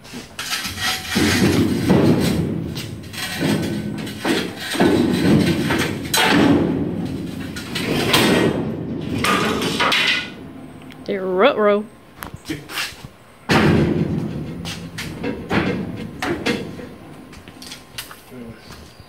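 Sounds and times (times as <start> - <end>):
metal tubing scraping and clanking: 0.0 - 10.5.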